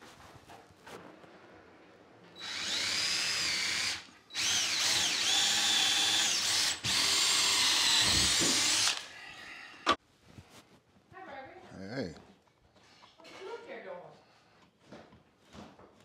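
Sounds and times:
cordless drill whining: 0:02.4 - 0:09.2.

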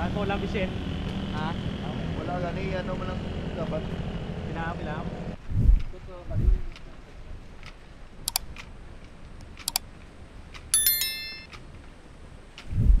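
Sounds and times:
sharp double clicks: 0:08.3 - 0:08.5, 0:09.6 - 0:09.8
metallic ding: 0:10.8 - 0:11.5.

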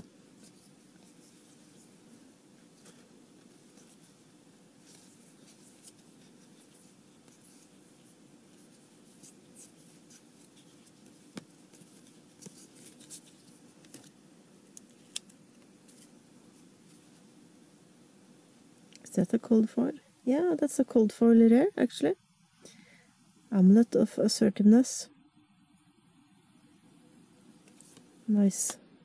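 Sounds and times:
trading cards scraping and flicking: 0:04.8 - 0:17.2, 0:27.6 - 0:28.8.

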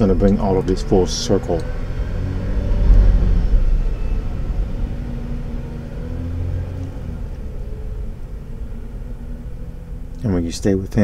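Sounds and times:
low rumble: 0:01.7 - 0:10.2.

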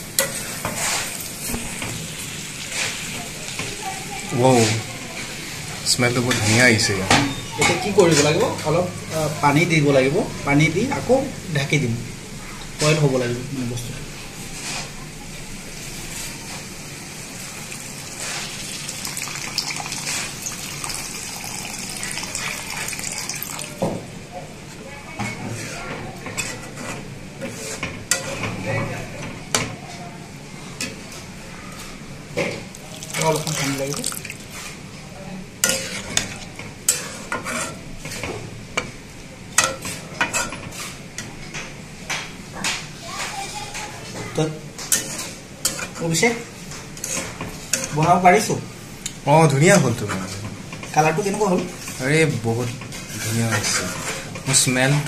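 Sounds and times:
spatula scraping a wok: 0:00.0 - 0:03.8, 0:14.3 - 0:16.8, 0:18.0 - 0:18.8, 0:19.9 - 0:20.6, 0:25.2 - 0:28.6, 0:34.4 - 0:34.9, 0:35.6 - 0:39.0, 0:39.6 - 0:41.3, 0:44.8 - 0:48.2, 0:49.8 - 0:55.0
low sizzle of gravy: 0:00.0 - 0:55.0
water pouring into a pan: 0:17.6 - 0:23.8, 0:32.7 - 0:34.6.

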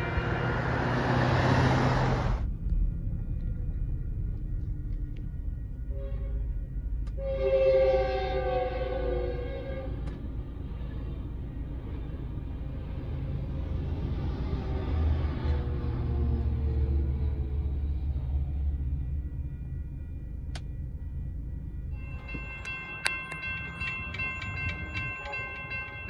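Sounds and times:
train air horn chord: 0:07.2 - 0:10.1.

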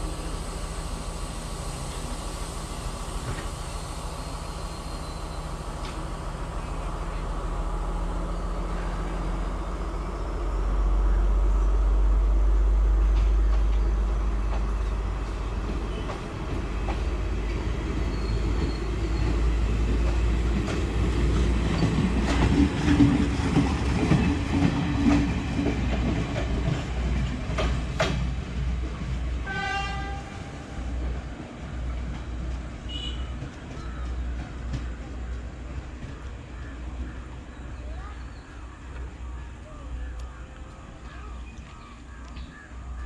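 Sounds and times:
train engine rumble: 0:00.0 - 0:43.0
train horn blast: 0:29.4 - 0:30.9, 0:32.9 - 0:33.4.

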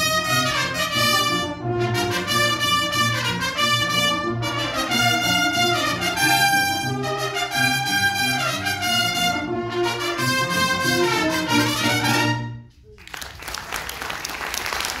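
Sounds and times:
brass band playing: 0:00.0 - 0:12.8
audience applause: 0:12.9 - 0:15.0.

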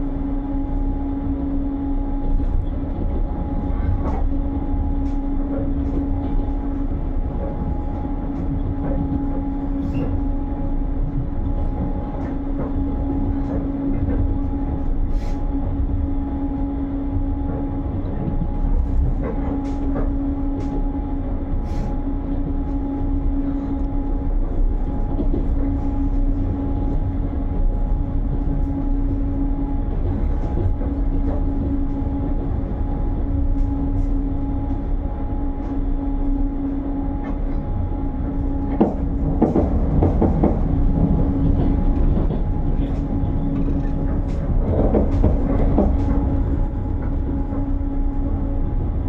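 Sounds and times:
train rumbling on track: 0:00.0 - 0:49.0
knocks and clatters: 0:38.4 - 0:47.6.

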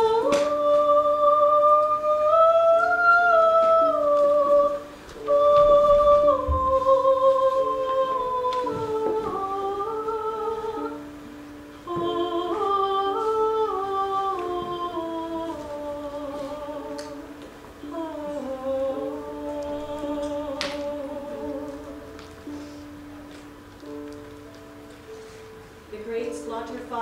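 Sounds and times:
woman singing wordless lament: 0:00.0 - 0:11.1, 0:11.8 - 0:22.0.

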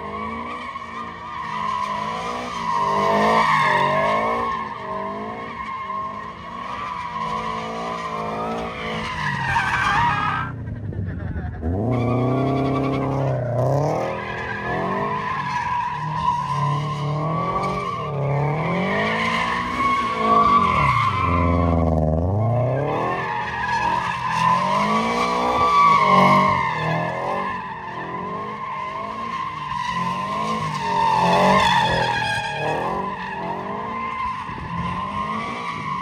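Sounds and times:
car engine revving: 0:10.0 - 0:15.4, 0:16.1 - 0:29.3.

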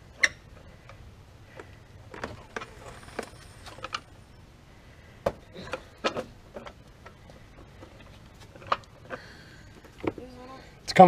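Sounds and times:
tire and rim creaking and knocking: 0:00.2 - 0:04.5.

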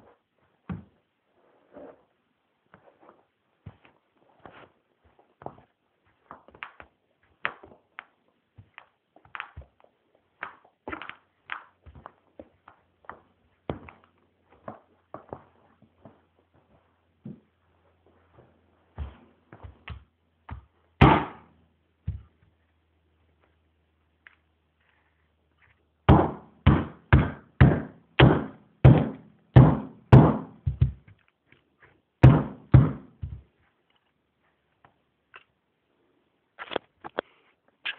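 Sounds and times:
footsteps on a rug: 0:02.7 - 0:20.7, 0:33.2 - 0:33.8.

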